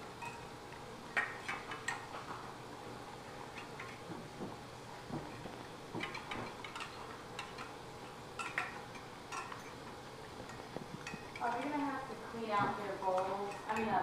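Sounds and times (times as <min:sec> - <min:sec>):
clinks against metal bowls: 0:06.0 - 0:14.0.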